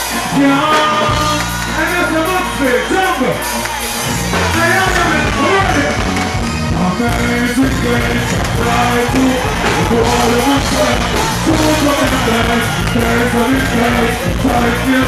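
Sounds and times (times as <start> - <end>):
loud dancehall music: 0.0 - 15.0
person singing over beat: 6.7 - 15.0.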